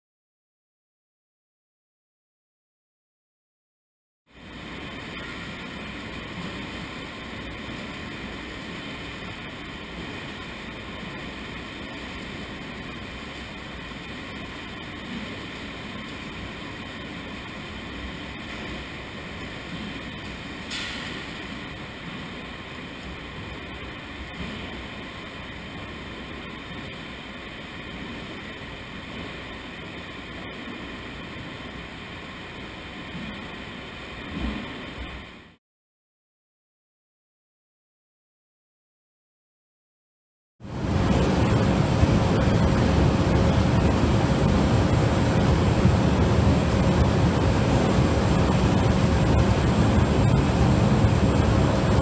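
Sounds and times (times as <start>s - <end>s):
machinery running: 4.4s - 34.0s, 40.6s - 52.0s.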